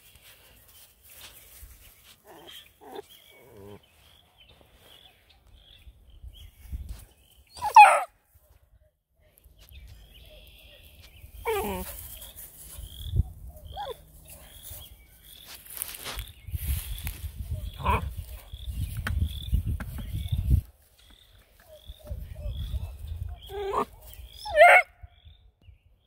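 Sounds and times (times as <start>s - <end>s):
puppies whining and yipping: 7.5s - 8.1s, 11.4s - 12.2s, 13.6s - 14.1s, 23.3s - 24.8s
puppy barking: 7.6s - 8.1s, 22.8s - 25.0s.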